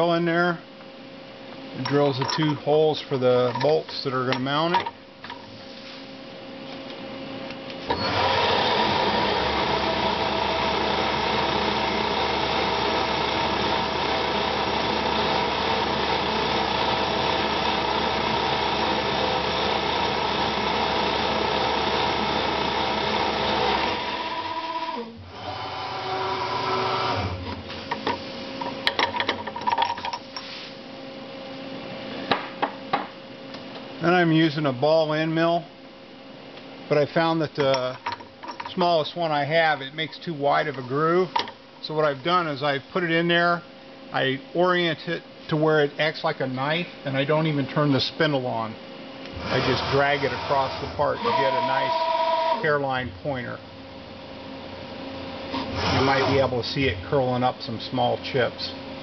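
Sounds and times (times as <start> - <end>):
quiet machine sound: 0.0 - 8.3, 9.1 - 59.0
mill spindle humming: 6.3 - 29.0, 46.4 - 59.0.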